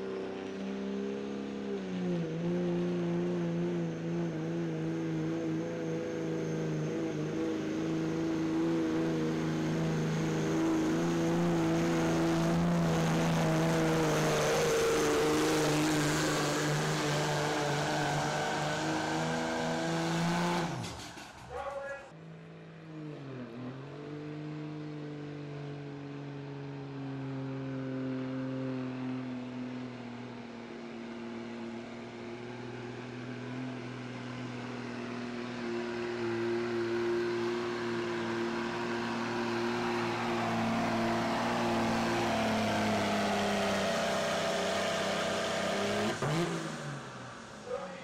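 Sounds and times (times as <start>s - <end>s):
truck engine at high revs: 0.0s - 48.0s.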